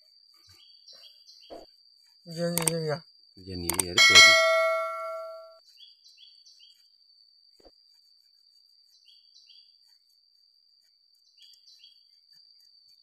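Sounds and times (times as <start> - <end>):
insect drone: 0.0 - 13.0
bird chirping: 0.4 - 1.7, 3.5 - 6.8, 8.9 - 9.8, 11.2 - 12.2.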